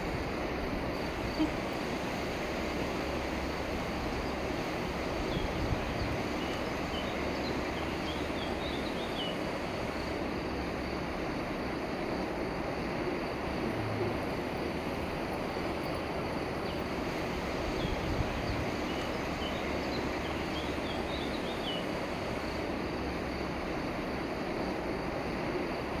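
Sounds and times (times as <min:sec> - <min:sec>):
wind on microphone: 0:04.6 - 0:06.4.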